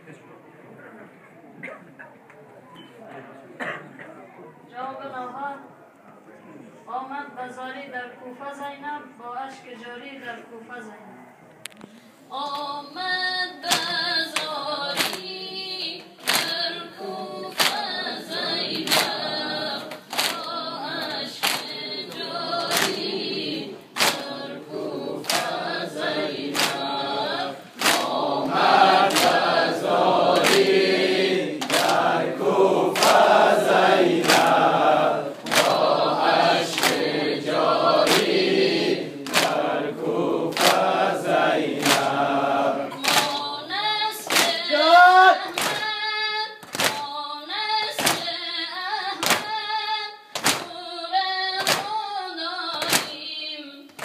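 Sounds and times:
amplified voice singing: 12.3 - 54.0
chorus of mourners singing: 12.4 - 45.8
hands slapping chests: 13.7 - 15.3, 16.2 - 16.6, 17.5 - 17.9, 19.9 - 23.1, 24.0 - 24.3, 25.2 - 27.0, 27.8 - 29.7, 30.3 - 30.8, 31.6 - 33.4, 34.1 - 34.7, 35.4 - 37.2, 38.0 - 38.4, 39.2 - 41.0, 41.7 - 42.2, 43.0 - 43.5, 44.2 - 44.6, 45.5 - 45.9, 46.6 - 47.1, 48.0 - 48.3, 49.2 - 49.6, 50.4 - 50.7, 51.6 - 52.0, 52.8 - 53.2.

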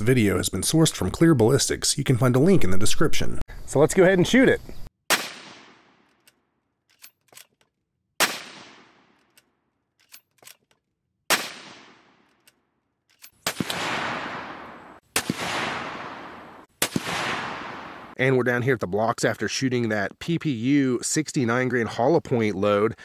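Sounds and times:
rifle shots ringing out: 5.1 - 6.1, 8.2 - 9.2, 11.3 - 12.3, 13.3 - 18.2
rifle bolt clicks: 6.1 - 7.8, 9.1 - 10.9, 12.2 - 13.7.

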